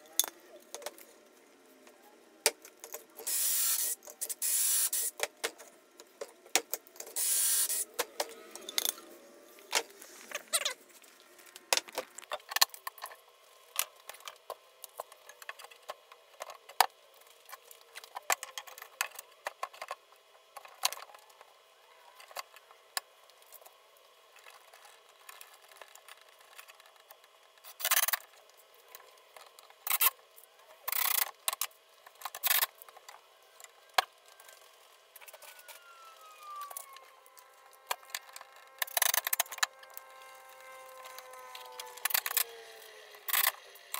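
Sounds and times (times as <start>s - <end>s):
cordless drill running: 3.2s - 5.1s, 7.2s - 8.0s.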